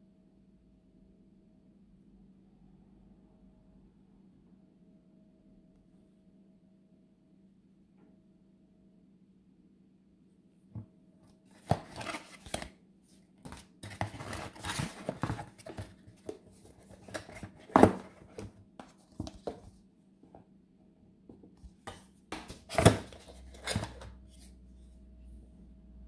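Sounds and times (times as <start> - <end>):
packaging rustling: 11.5 - 12.7, 13.5 - 19.7.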